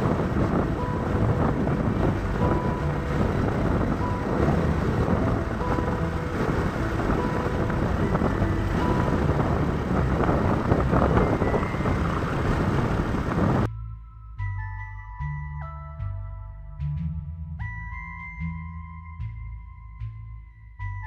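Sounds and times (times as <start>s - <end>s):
wind rushing on microphone: 0.0s - 13.7s.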